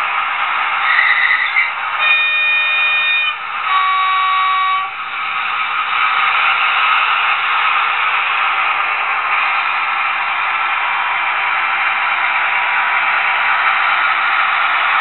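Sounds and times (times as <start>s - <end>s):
two-tone locomotive horn: 0.8s - 5.1s.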